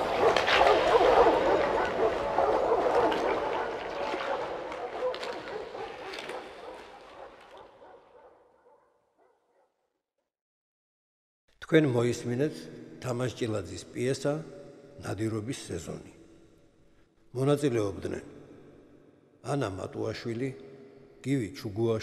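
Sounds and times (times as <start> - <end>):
dogs barking and yelping: 0.0 - 9.3.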